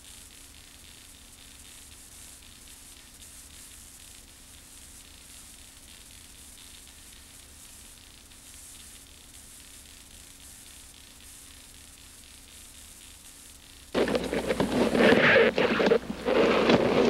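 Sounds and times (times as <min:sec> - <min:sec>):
videotape hiss and hum: 0:10.2 - 0:17.0.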